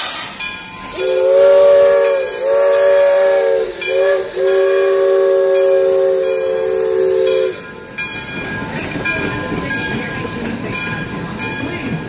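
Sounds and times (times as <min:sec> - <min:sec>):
steam hissing: 0:00.0 - 0:10.4
train clattering and rumbling: 0:00.0 - 0:12.0
steam whistle chord: 0:00.8 - 0:07.8.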